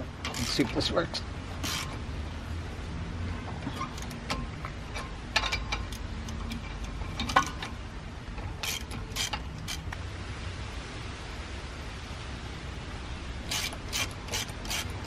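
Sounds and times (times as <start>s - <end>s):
ratchet wrench clicking: 1.6s - 2.0s, 8.6s - 9.9s, 13.5s - 15.0s.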